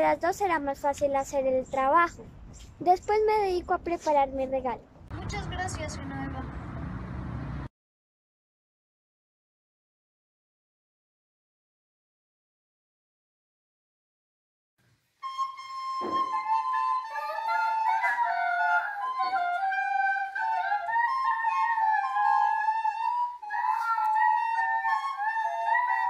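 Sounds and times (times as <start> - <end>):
recorders playing a melody: 15.2 - 26.0.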